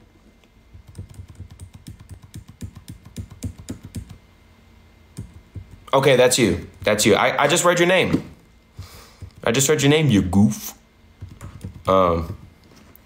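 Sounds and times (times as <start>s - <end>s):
keyboard typing clicks: 0.8s - 4.2s, 11.2s - 12.5s.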